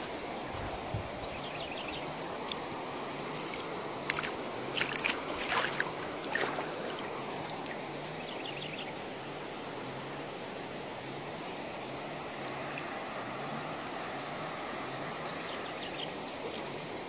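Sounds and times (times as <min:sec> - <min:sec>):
water running over rocks: 0:00.0 - 0:17.0
footsteps splashing through water: 0:03.3 - 0:07.2.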